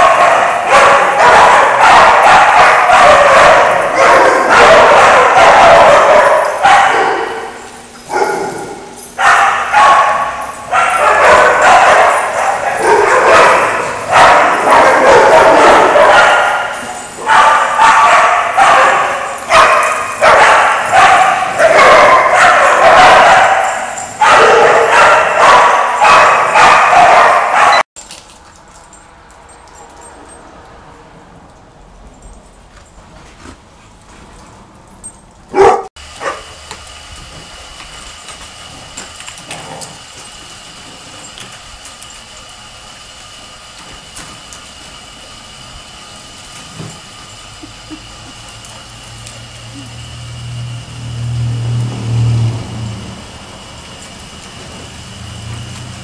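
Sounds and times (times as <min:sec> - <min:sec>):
single dog bark: 0:00.0 - 0:07.3, 0:09.2 - 0:10.2, 0:17.3 - 0:27.8, 0:35.6 - 0:36.4
dogs barking and yipping: 0:00.0 - 0:27.9, 0:35.1 - 0:36.8, 0:46.4 - 0:56.0.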